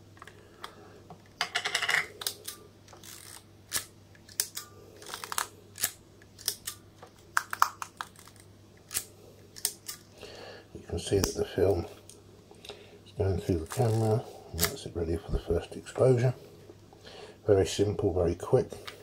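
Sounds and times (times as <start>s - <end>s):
camera film ratcheting rasp: 2.2s - 6.8s.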